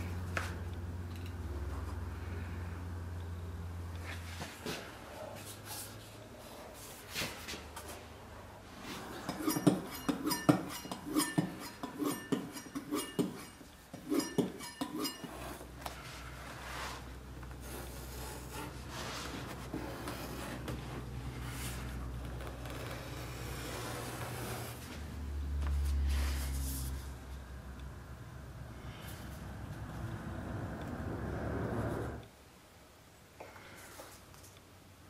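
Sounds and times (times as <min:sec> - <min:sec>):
scraping strokes: 0:08.7 - 0:25.0
tool rubbing leather: 0:08.8 - 0:25.0
knife cutting leather: 0:17.5 - 0:21.1.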